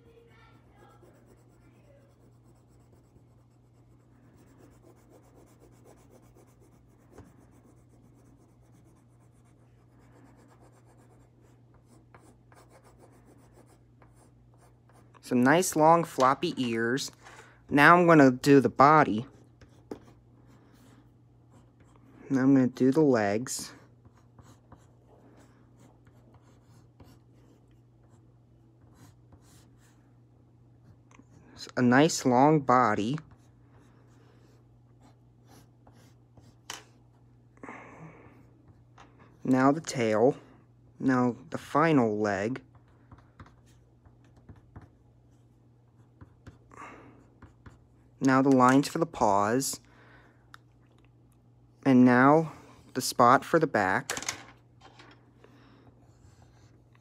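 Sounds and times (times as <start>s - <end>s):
low steady hum: 0.0s - 57.0s
pencil scratching on paper: 0.4s - 15.1s, 24.0s - 30.0s, 33.3s - 37.2s, 56.0s - 57.0s.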